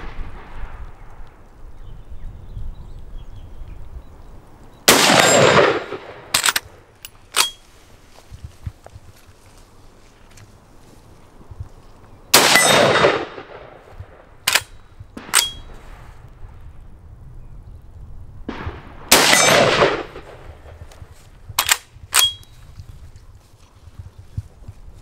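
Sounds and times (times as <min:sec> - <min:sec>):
rifle shots with echo: 0:04.9 - 0:07.6, 0:12.3 - 0:15.8, 0:18.5 - 0:22.4
rifle bolt metallic clacks: 0:05.1 - 0:07.6, 0:14.4 - 0:15.7, 0:21.6 - 0:22.5.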